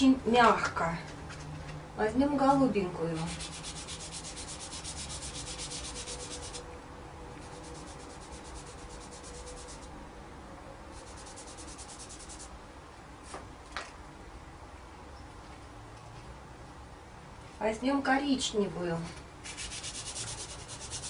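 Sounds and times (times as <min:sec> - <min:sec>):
pastel scratching on paper: 0:03.2 - 0:06.6, 0:07.4 - 0:09.9, 0:11.0 - 0:12.5, 0:19.4 - 0:21.0.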